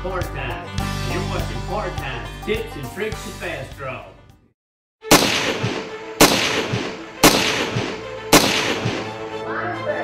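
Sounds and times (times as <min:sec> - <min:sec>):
gunshots with ringing tail: 0:05.1 - 0:09.2.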